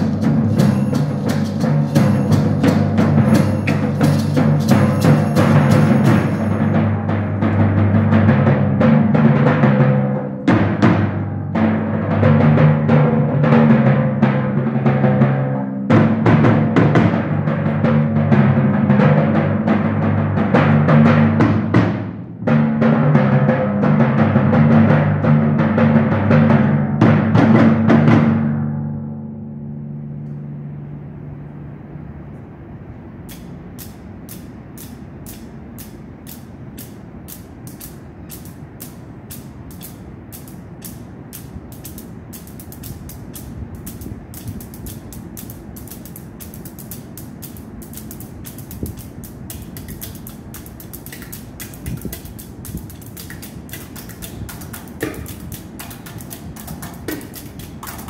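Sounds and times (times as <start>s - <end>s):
sharp percussion clicks: 0.0s - 8.1s, 33.2s - 58.0s
timpani and drums: 0.0s - 28.9s, 53.8s - 58.0s
low drum rumble: 0.0s - 57.1s.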